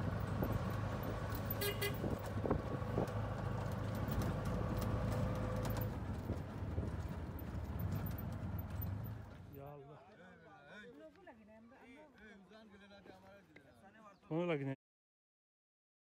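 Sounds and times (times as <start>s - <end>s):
vehicle body rattling: 0.0s - 9.6s.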